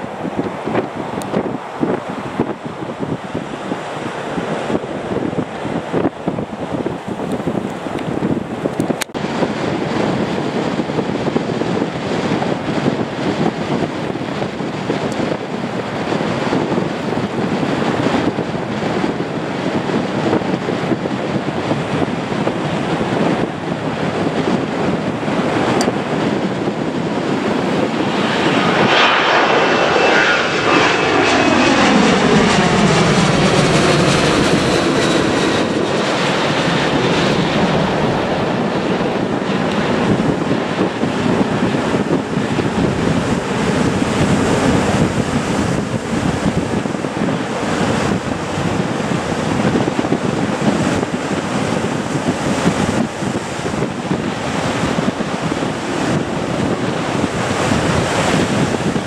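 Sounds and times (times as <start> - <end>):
jet roar passing overhead: 0.0 - 59.0.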